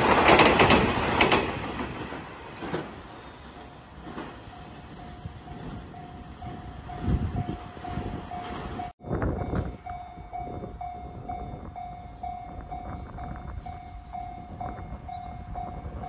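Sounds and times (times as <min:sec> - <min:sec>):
level crossing warning bell: 0:04.4 - 0:16.0.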